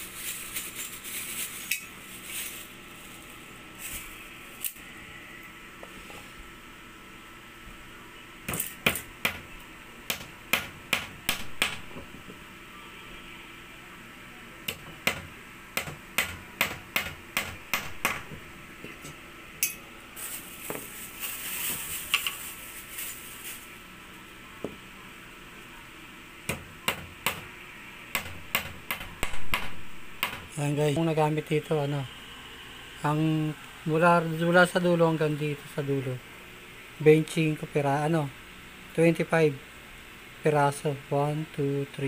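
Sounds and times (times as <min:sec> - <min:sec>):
hammer striking nails into wood: 0:08.5 - 0:09.4, 0:10.1 - 0:12.0, 0:14.7 - 0:18.4, 0:28.2 - 0:30.5.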